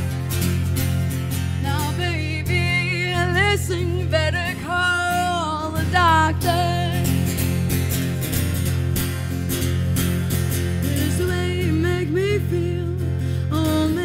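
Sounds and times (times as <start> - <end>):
strummed acoustic guitar: 0.0 - 14.0
woman singing with vibrato: 1.6 - 7.5, 10.8 - 14.0.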